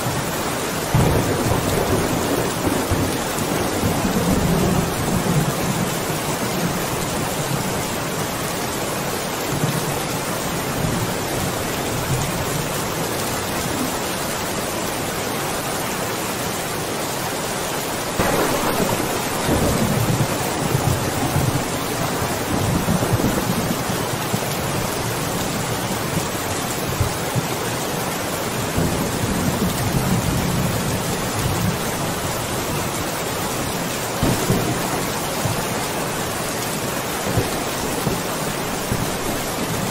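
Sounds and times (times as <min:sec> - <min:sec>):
heavy rain: 0:00.0 - 0:39.9
rolling thunder: 0:00.9 - 0:06.1, 0:18.2 - 0:24.4, 0:34.2 - 0:35.6.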